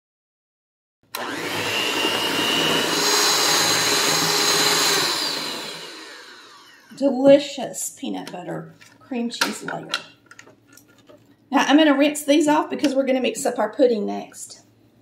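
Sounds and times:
electric hand mixer whining: 0:01.1 - 0:07.0.

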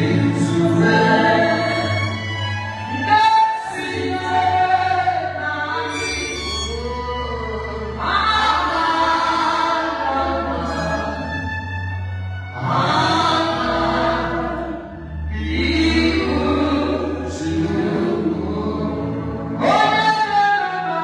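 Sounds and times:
woman singing through microphone: 0:02.9 - 0:11.1, 0:19.6 - 0:21.0.

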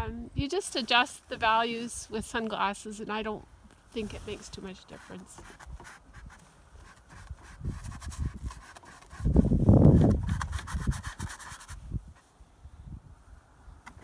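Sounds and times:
faint scratching: 0:03.8 - 0:12.3.

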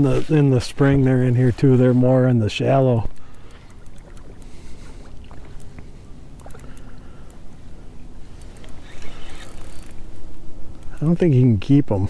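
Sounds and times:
boat engine rumble: 0:00.0 - 0:12.0
faint even hum: 0:00.1 - 0:11.3
small clicks: 0:03.0 - 0:04.5, 0:06.4 - 0:07.4, 0:08.4 - 0:11.0.

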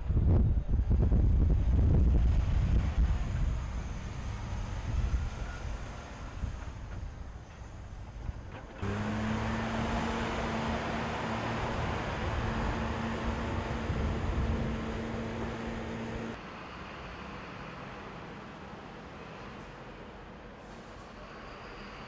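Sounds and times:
army truck engine rumble: 0:00.0 - 0:16.4
container handler engine humming: 0:02.4 - 0:16.5.

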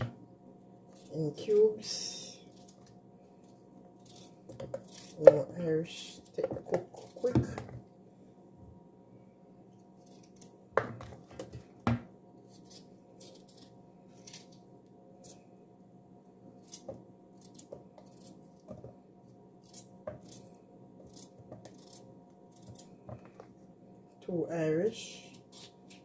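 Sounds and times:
knife slicing potato: 0:04.0 - 0:07.6, 0:16.6 - 0:18.8, 0:19.6 - 0:22.9.

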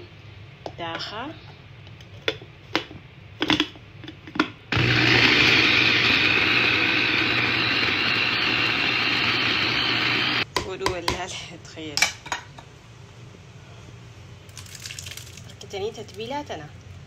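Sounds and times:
food chopper motor whirring: 0:04.7 - 0:10.4.

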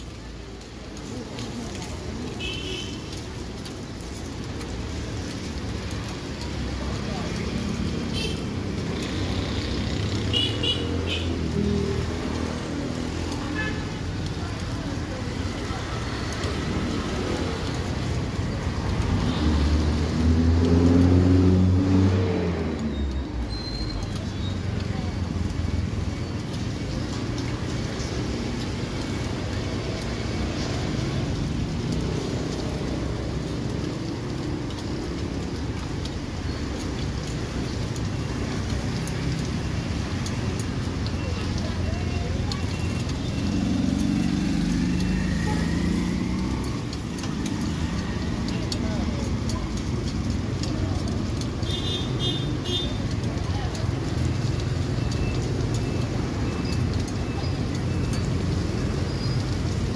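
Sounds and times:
road traffic rumble: 0:00.0 - 0:59.9
batter sizzling on griddle: 0:44.8 - 0:59.9.

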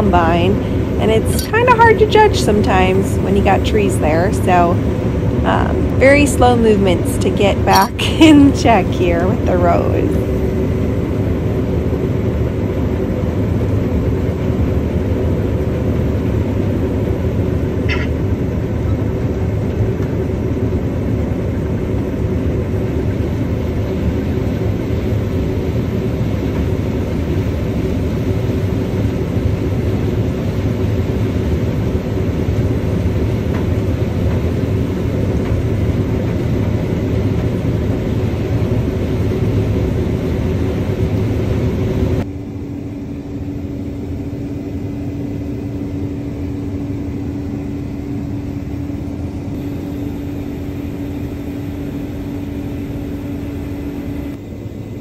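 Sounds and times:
combine harvester engine: 0:00.0 - 0:55.0.

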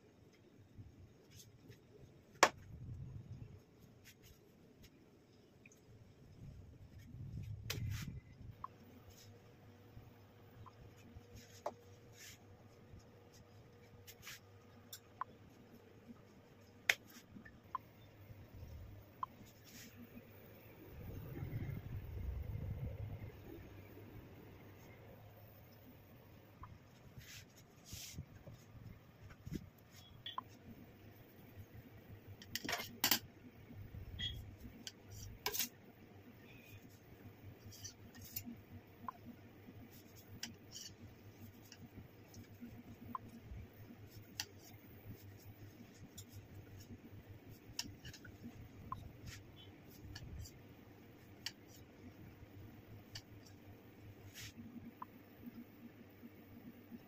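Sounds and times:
steady low hum: 0:00.0 - 0:57.0
rustling and scraping: 0:06.9 - 0:08.2, 0:11.0 - 0:14.9, 0:26.9 - 0:30.2.

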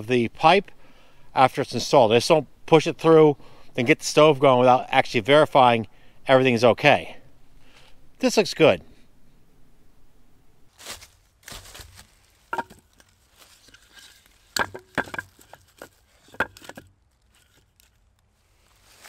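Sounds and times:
dry leaves scraping and rustling: 0:10.7 - 0:19.0
firewood clacking: 0:11.5 - 0:18.0.

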